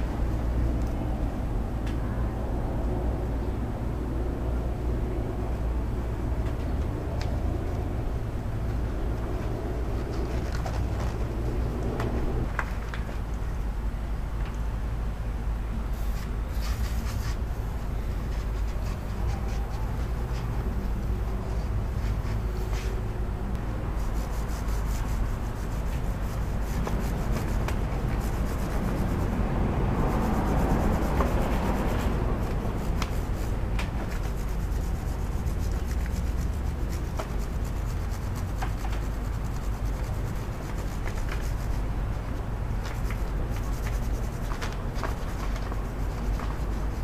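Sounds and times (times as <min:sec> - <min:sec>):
low rumble: 0:00.0 - 0:12.6.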